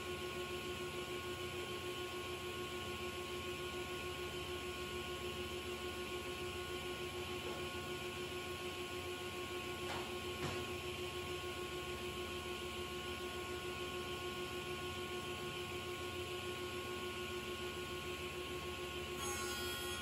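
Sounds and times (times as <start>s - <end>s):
panel saw humming with high whine: 0.0s - 20.0s.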